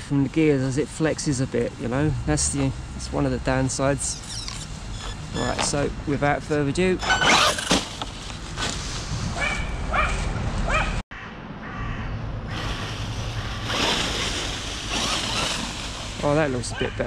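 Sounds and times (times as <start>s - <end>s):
crow cawing: 11.1s - 12.2s.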